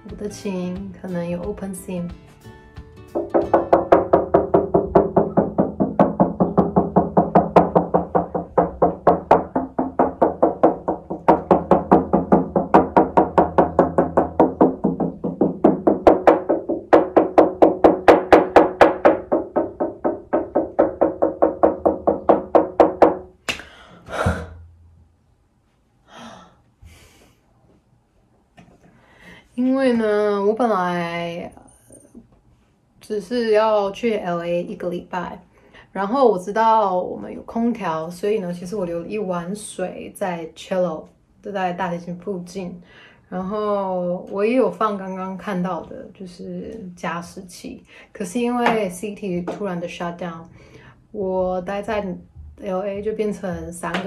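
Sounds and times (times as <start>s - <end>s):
knuckles tapping cello body: 3.1s - 23.6s.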